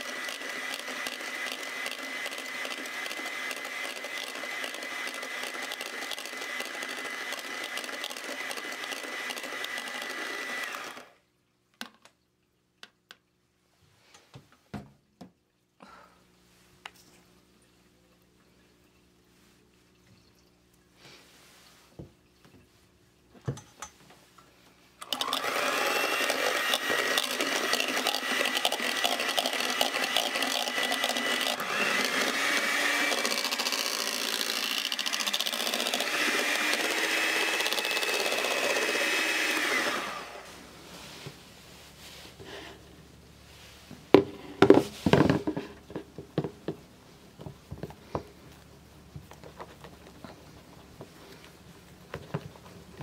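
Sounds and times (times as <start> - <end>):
electric hand mixer whipping: 0.0 - 11.2, 25.0 - 40.8.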